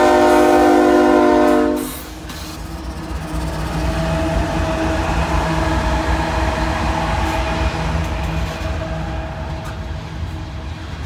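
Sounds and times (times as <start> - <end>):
freight train rumbling past: 0.0 - 11.0.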